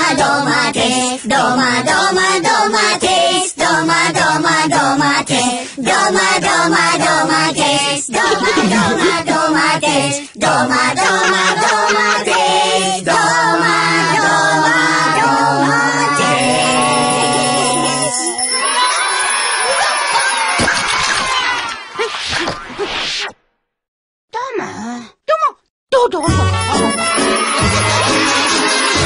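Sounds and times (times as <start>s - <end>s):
cartoon voices singing a cappella: 0.0s - 18.3s.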